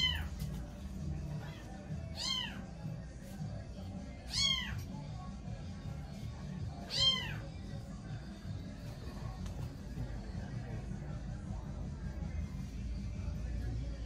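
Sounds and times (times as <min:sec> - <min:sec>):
cat meowing: 0:00.0 - 0:00.4, 0:01.3 - 0:02.8, 0:04.2 - 0:04.9, 0:06.7 - 0:07.5
low background music: 0:00.0 - 0:14.0.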